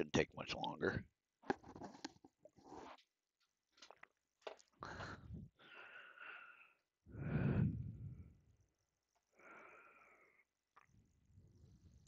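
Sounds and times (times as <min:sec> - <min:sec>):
person breathing: 0:04.8 - 0:08.5, 0:09.3 - 0:10.6.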